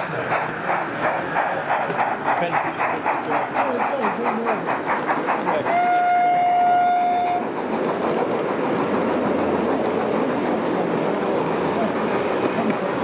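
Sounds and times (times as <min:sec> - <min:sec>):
steam locomotive chuffing: 0:00.0 - 0:13.0
train whistle blast: 0:05.7 - 0:07.4.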